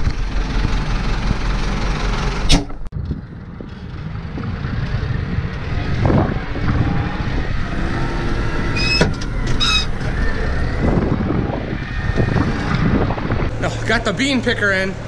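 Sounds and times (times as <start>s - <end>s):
tractor engine running: 0.0s - 11.6s.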